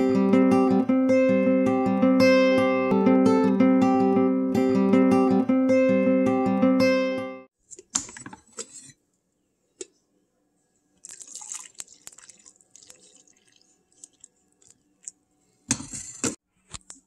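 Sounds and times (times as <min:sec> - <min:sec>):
coffee pouring into mug: 0:11.0 - 0:15.2.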